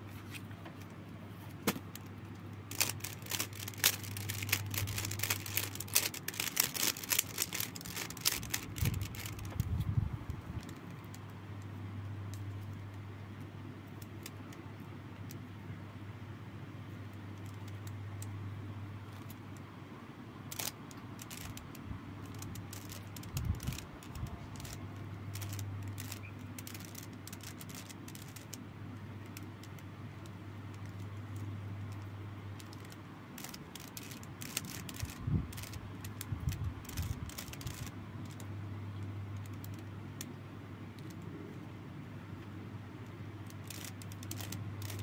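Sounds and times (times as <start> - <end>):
steady low hum: 0.0 - 45.0.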